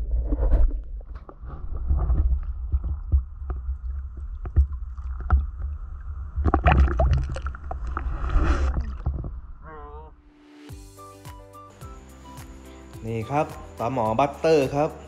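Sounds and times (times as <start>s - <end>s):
water splashes: 1.5s - 9.6s.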